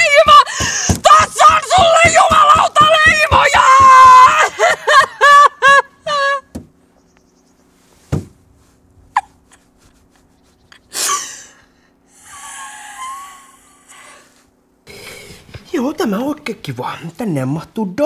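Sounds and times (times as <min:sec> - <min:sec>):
woman screaming: 0:00.0 - 0:06.5
dull thud: 0:00.5 - 0:04.1, 0:06.5 - 0:06.8, 0:08.1 - 0:08.4.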